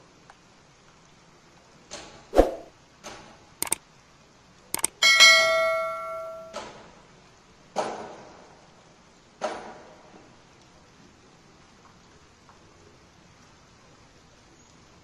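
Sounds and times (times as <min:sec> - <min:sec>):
sharp mouse clicks: 0:02.4 - 0:02.7, 0:04.8 - 0:05.0
short bursts of noise: 0:02.4 - 0:02.7, 0:04.8 - 0:05.0
notification bell ding: 0:04.8 - 0:06.6.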